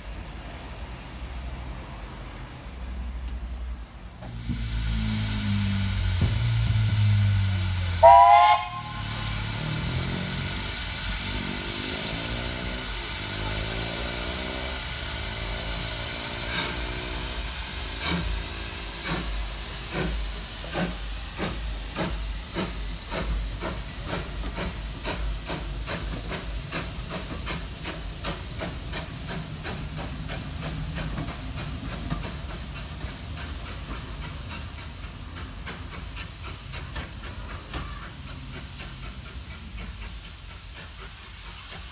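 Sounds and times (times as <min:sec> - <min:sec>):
hissing steam: 0:04.1 - 0:41.9
steam engine exhaust chuffs: 0:04.2 - 0:41.9
steam whistle blast: 0:04.4 - 0:11.5.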